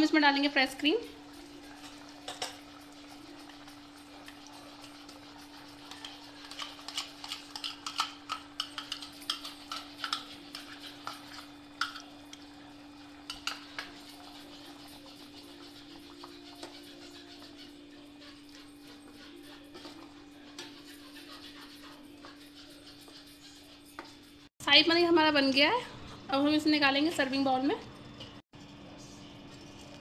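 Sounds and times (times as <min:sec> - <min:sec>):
spoon stirring and scraping gravy: 0:01.0 - 0:24.5.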